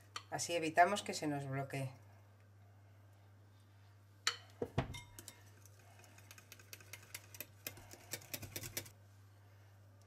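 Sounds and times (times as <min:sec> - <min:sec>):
whisk ticking against glass bowl: 0:04.9 - 0:08.9.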